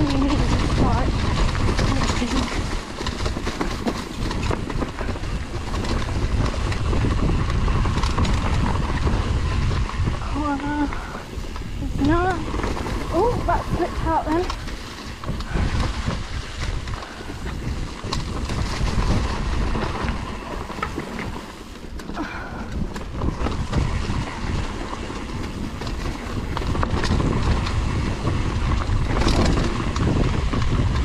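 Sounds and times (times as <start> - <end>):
bike clicks and knocks: 0.0 - 10.2, 11.3 - 31.0
tyres rumbling on rough dirt: 0.0 - 31.0
wind buffeting microphone: 0.0 - 31.0.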